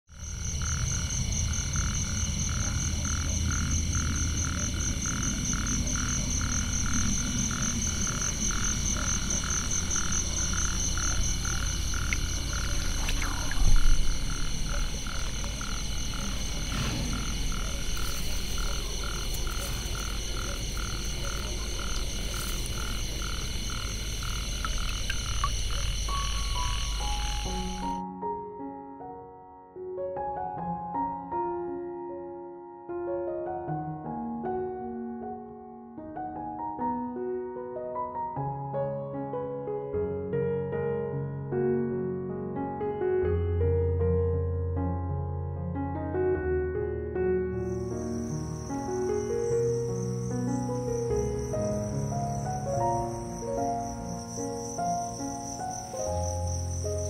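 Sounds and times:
frogs croaking: 0:00.1 - 0:28.0, 0:47.6 - 0:57.0.

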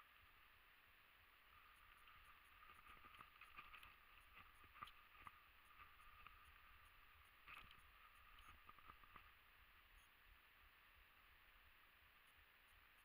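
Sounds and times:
twigs crackling underfoot: 0:01.5 - 0:09.4.

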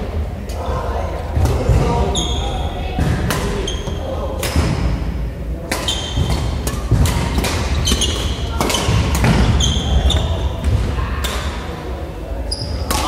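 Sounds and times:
rackets hitting shuttlecocks: 0:03.0 - 0:04.8, 0:05.6 - 0:11.6
shoes squeaking on court: 0:03.6 - 0:04.0, 0:05.8 - 0:06.4, 0:07.6 - 0:10.7, 0:12.5 - 0:13.0.

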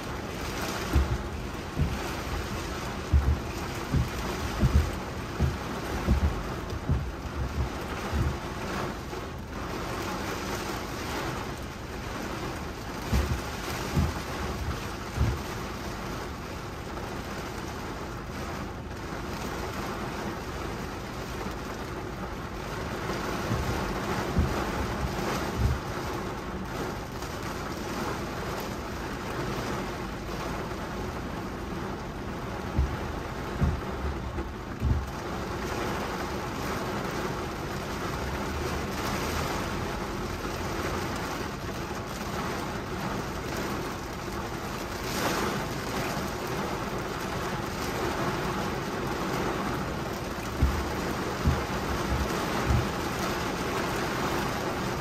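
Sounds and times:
low thumps: 0:00.0 - 0:08.8, 0:13.0 - 0:15.7, 0:23.4 - 0:26.4, 0:31.2 - 0:35.8, 0:50.4 - 0:53.7
heavy rain on car: 0:00.0 - 0:55.0.

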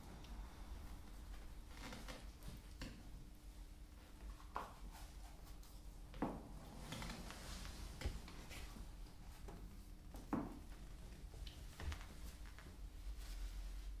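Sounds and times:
soft knocks and handling sounds: 0:04.2 - 0:14.0.

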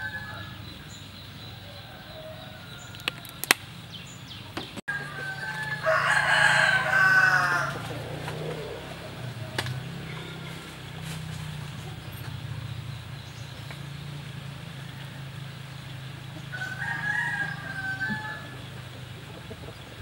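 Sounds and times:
rooster crowing: 0:00.0 - 0:03.4, 0:04.9 - 0:09.4, 0:16.4 - 0:18.9.

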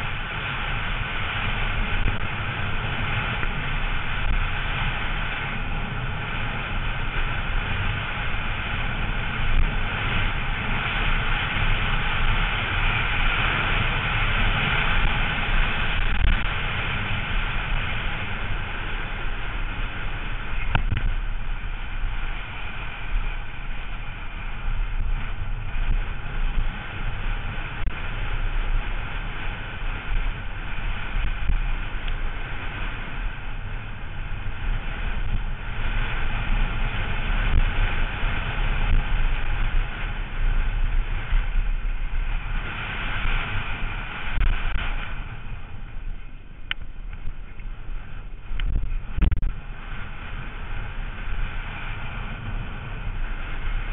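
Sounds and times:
bike tyres rumbling on gravel: 0:00.0 - 0:53.9
wind buffeting microphone: 0:00.0 - 0:53.9.

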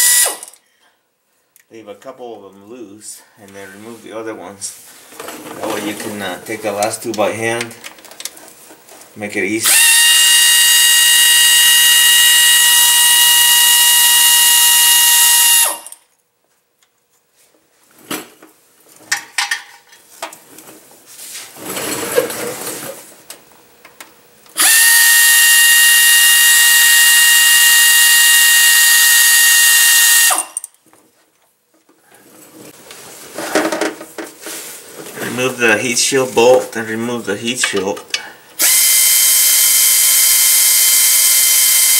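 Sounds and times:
air ratchet whining: 0:00.0 - 0:00.6, 0:09.6 - 0:16.0, 0:24.6 - 0:30.7, 0:38.6 - 0:41.9.

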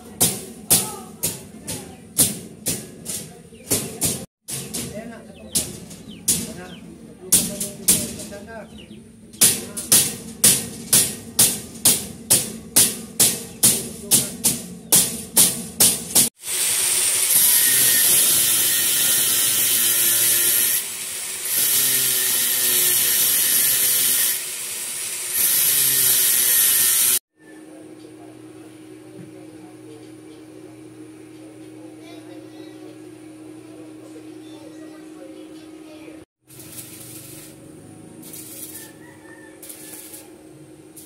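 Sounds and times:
hammer striking steel grill: 0:00.0 - 0:16.3, 0:36.4 - 0:37.6, 0:38.2 - 0:41.0
electric hand drill running: 0:16.3 - 0:27.2.

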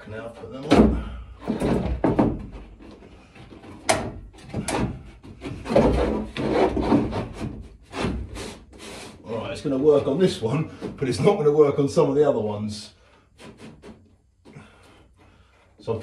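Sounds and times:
wood scraping against wood: 0:00.0 - 0:11.4, 0:13.0 - 0:16.0
sharp wooden knocks: 0:00.6 - 0:08.3.

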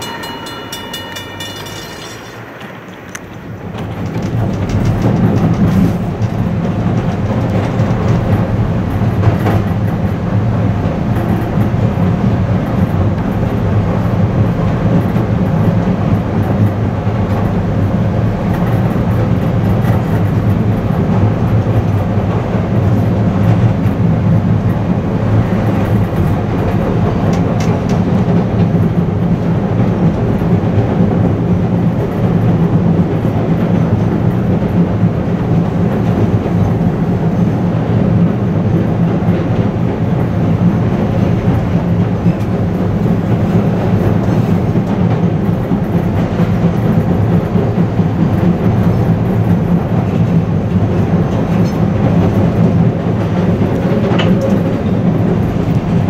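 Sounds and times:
wheels clacking over rail joints: 0:00.0 - 0:37.4, 0:39.2 - 0:56.0
train wheels and motors rumbling: 0:00.0 - 0:56.0.

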